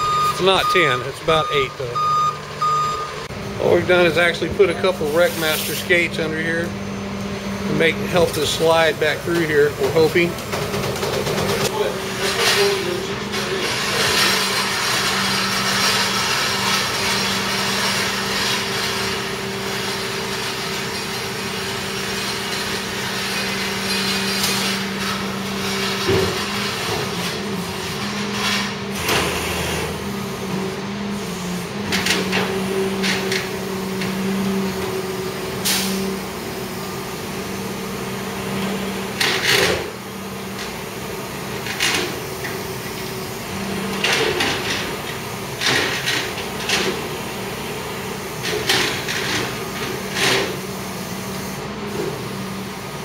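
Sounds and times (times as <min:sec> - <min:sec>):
truck engine running: 0:00.0 - 0:05.2.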